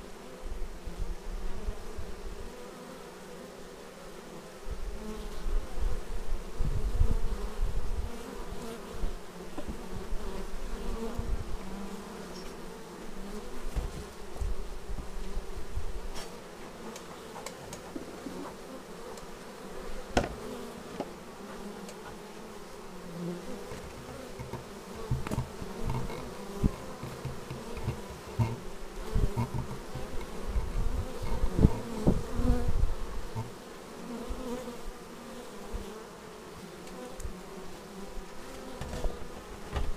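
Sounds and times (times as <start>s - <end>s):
honeybees buzzing: 0.0s - 39.9s
bumps and rumbles on microphone: 23.7s - 33.5s.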